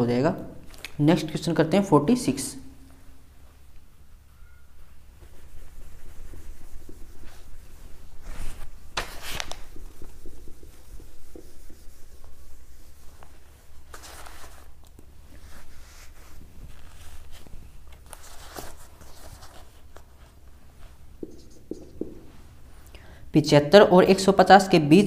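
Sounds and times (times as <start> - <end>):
duster rubbing on whiteboard: 4.8 - 17.4, 18.2 - 22.6.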